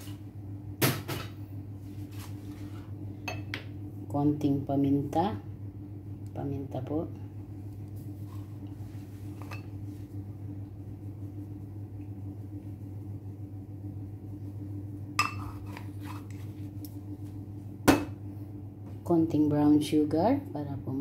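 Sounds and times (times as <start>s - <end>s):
steady low hum: 0.0s - 21.0s
rustling scrape: 1.8s - 3.0s, 8.0s - 10.2s, 15.4s - 16.7s.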